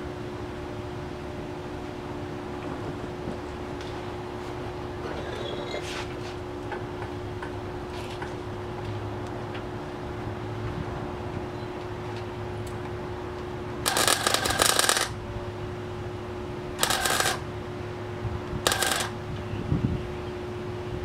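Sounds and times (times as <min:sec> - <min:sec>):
steady hum: 0:12.0 - 0:21.0
welding arc crackling: 0:13.9 - 0:15.2, 0:16.8 - 0:17.4, 0:18.6 - 0:19.2.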